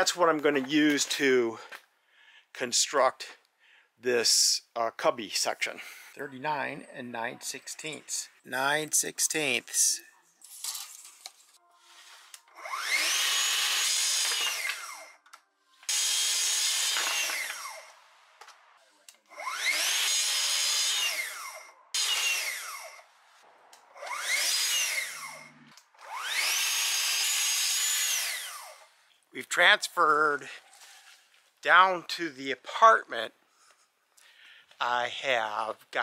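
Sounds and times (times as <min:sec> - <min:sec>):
track saw cutting boards: 0:12.4 - 0:15.1, 0:15.8 - 0:18.0, 0:19.3 - 0:23.0, 0:23.9 - 0:29.0.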